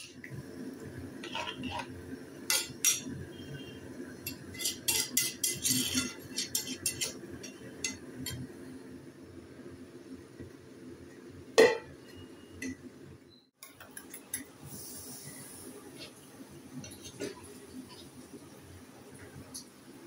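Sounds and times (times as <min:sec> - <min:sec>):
spatula scraping a wok: 0:01.2 - 0:03.1, 0:04.2 - 0:08.4, 0:16.8 - 0:18.2.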